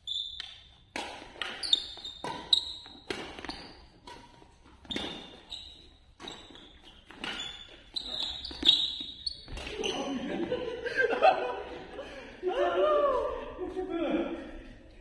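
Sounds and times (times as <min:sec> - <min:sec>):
shoe squeaks: 0:00.0 - 0:10.2
racket hitting shuttlecock: 0:00.3 - 0:10.5
footfalls on court floor: 0:01.0 - 0:15.0.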